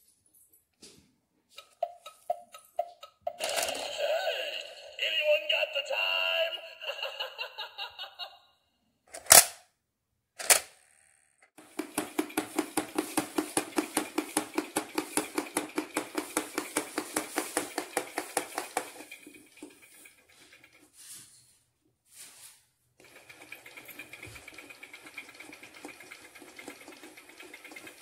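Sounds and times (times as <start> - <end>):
toy motor and gears clicking: 1.6 - 4.1, 10.4 - 20.9, 23.0 - 28.0
toy electronic voice: 3.0 - 7.1.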